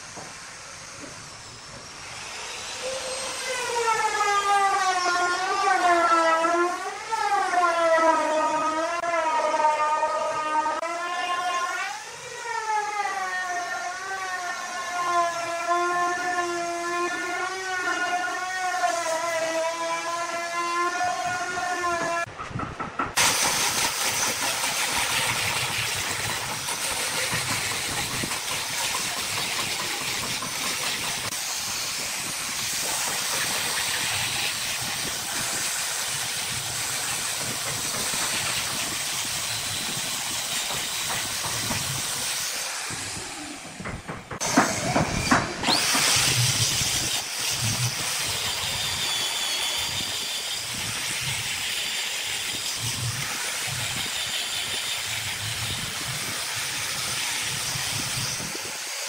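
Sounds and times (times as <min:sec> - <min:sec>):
abrasive hissing on wood: 0:00.0 - 0:04.3, 0:23.2 - 0:59.0
angle grinder motor whine: 0:00.8 - 0:22.3, 0:44.4 - 0:59.0
knocks: 0:43.7 - 0:46.1.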